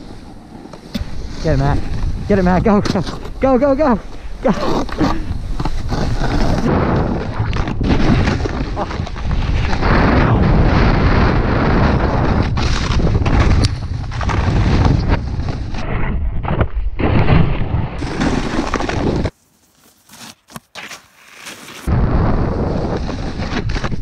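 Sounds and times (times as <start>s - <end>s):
snowboard scraping over snow: 0.0s - 16.2s, 17.0s - 24.0s
wind buffeting microphone: 1.0s - 3.5s, 5.2s - 16.4s.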